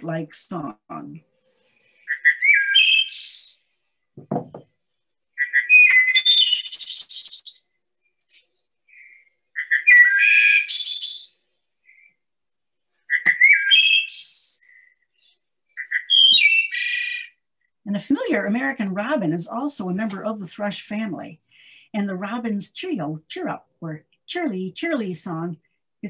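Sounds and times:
thrush singing whistled phrases: 0:02.0 - 0:03.7, 0:05.4 - 0:07.7, 0:08.9 - 0:12.2, 0:13.1 - 0:17.3.

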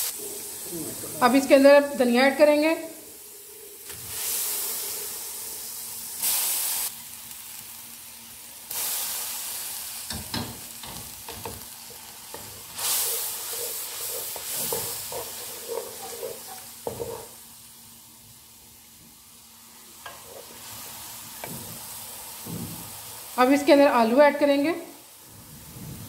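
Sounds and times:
hot oil sizzling in a pan: 0:00.0 - 0:26.0
wooden spatula scraping a pan: 0:12.4 - 0:17.4.

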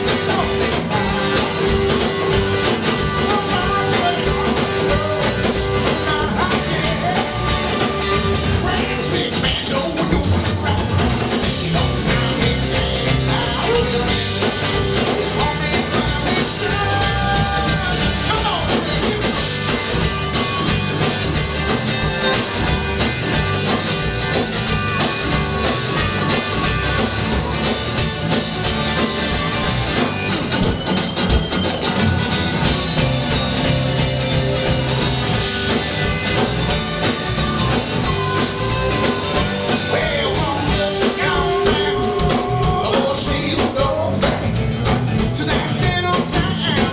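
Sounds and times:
person singing: 0:00.0 - 0:07.8, 0:08.5 - 0:19.9, 0:37.8 - 0:44.5, 0:45.2 - 0:46.9
live country-rock band: 0:00.0 - 0:46.9.

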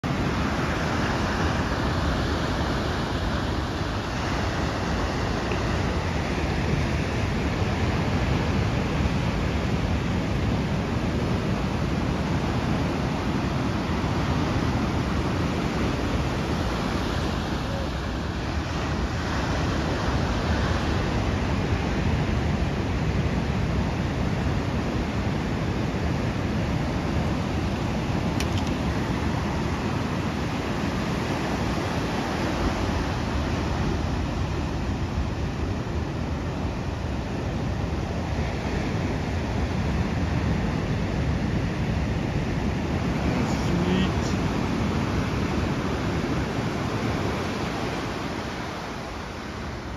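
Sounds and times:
ocean surf breaking on beach: 0:00.0 - 0:49.9.

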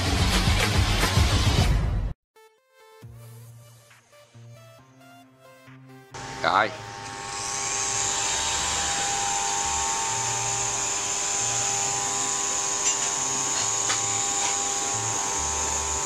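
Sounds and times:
toy helicopter motor whine: 0:06.2 - 0:16.0.

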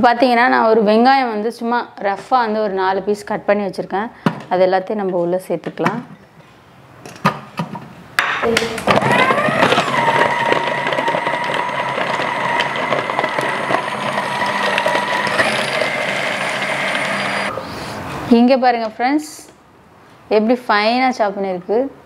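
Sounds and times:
food processor motor whine: 0:08.8 - 0:17.5.

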